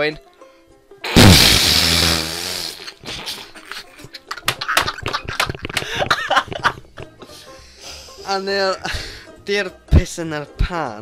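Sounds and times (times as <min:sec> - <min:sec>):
harsh rasping burst: 0:01.1 - 0:03.0
wheezing laughter: 0:01.6 - 0:08.2.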